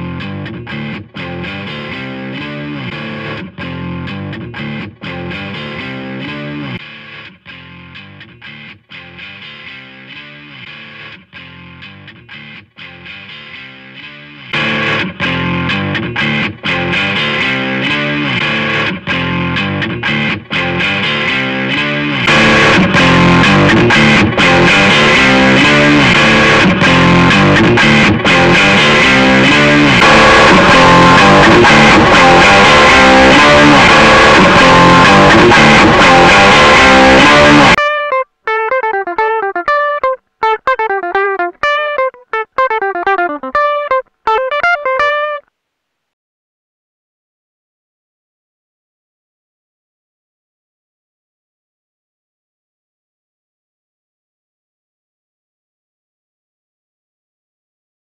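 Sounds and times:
single picked guitar notes: 0.0 - 45.5
overdriven electric guitar: 0.0 - 45.6.

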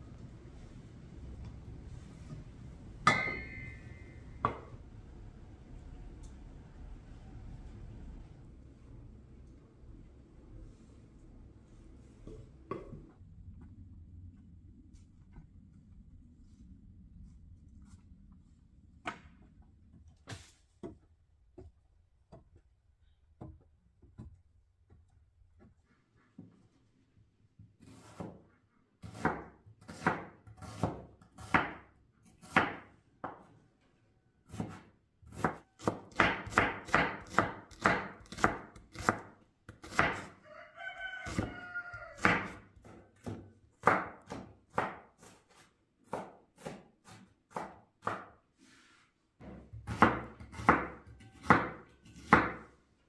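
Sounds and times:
rooster crowing: 40.1 - 42.6.

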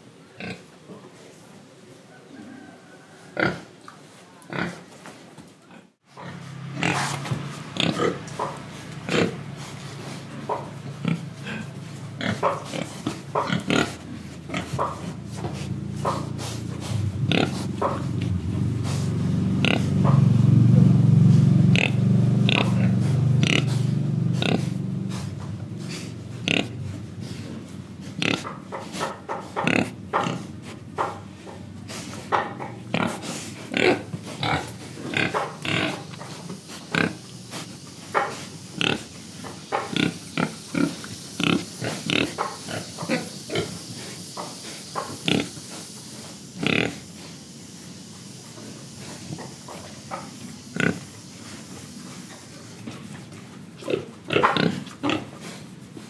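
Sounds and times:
pigs grunting and snorting: 0.4 - 0.7, 3.3 - 3.8, 4.5 - 4.9, 5.7 - 47.3, 48.8 - 56.0.

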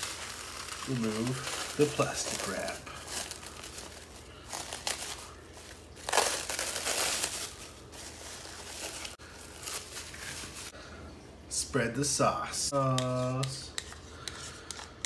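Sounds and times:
cling wrap crinkling: 0.0 - 10.7.

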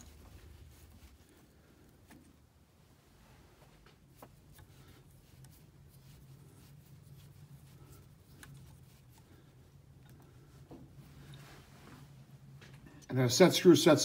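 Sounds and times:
low room hum: 0.0 - 14.0
faint clicks of metal parts: 3.6 - 13.1.

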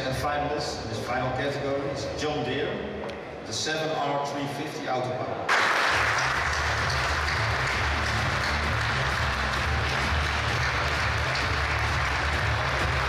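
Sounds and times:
audience applauding: 5.5 - 13.0
low background music: 5.9 - 13.0.

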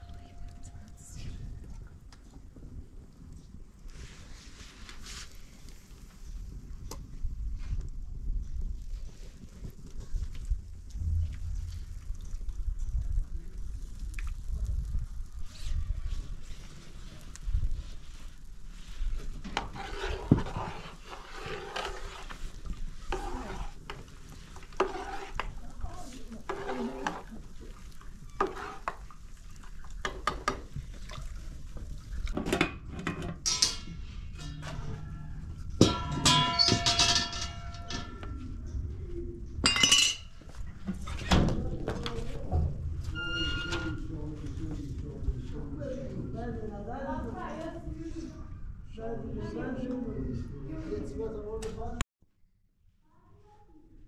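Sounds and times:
metal dishes clinking: 32.5 - 38.4, 39.6 - 40.3.

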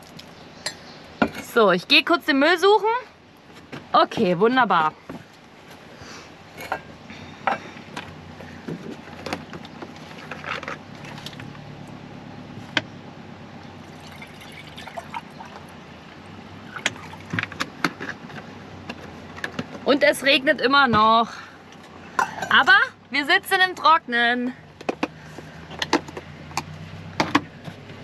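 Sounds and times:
objects being handled: 7.5 - 11.6.

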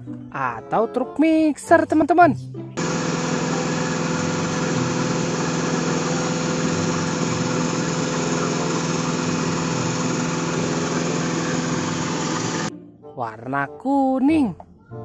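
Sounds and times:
diesel truck engine running: 2.8 - 12.7.

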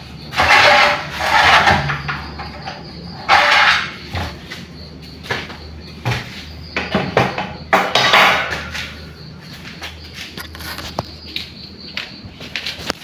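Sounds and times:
objects knocking and clattering: 0.3 - 9.1
footsteps: 4.0 - 13.0
rubbing against microphone: 10.0 - 11.3.

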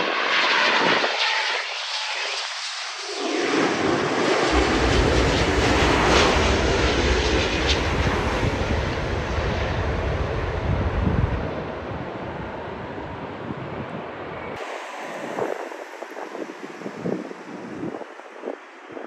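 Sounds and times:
jet engines roaring overhead: 0.0 - 19.0.

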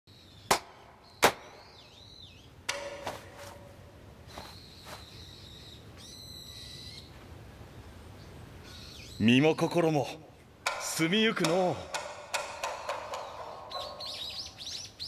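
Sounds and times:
ringing knock: 2.7 - 3.8, 10.6 - 14.4
high chirping calls: 4.3 - 7.2, 8.2 - 10.2, 11.0 - 15.0.

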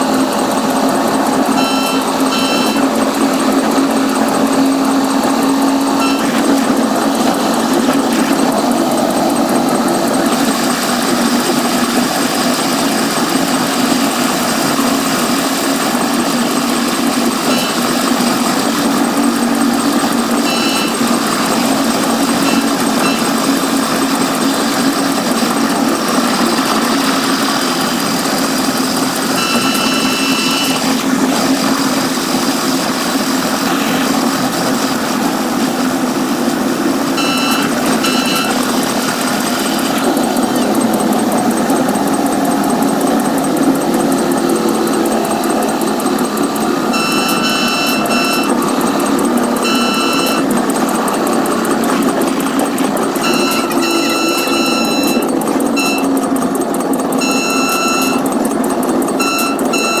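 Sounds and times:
train running on rails: 0.0 - 60.0
train horn short blasts: 1.5 - 3.0, 5.9 - 6.6, 17.4 - 18.0, 20.4 - 21.1, 29.3 - 31.0, 46.9 - 48.6, 49.6 - 50.5.

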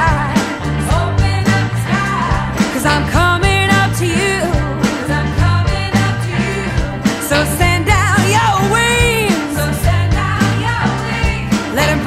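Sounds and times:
soul band music: 0.0 - 12.0.

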